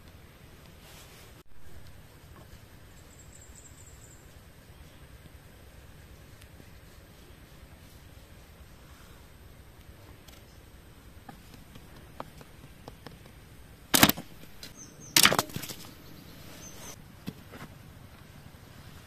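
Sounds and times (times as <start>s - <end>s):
bamboo sticks clacking together: 11.2s - 16.0s.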